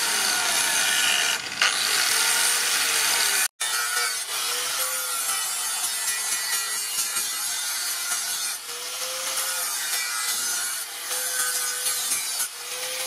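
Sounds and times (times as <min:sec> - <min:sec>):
angle grinder grinding steel: 0:00.0 - 0:13.0.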